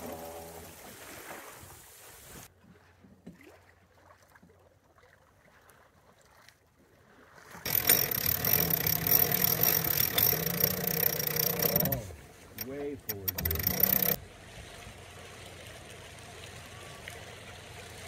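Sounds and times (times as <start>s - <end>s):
water lapping: 0.0s - 18.0s
boat creaks: 7.6s - 14.2s.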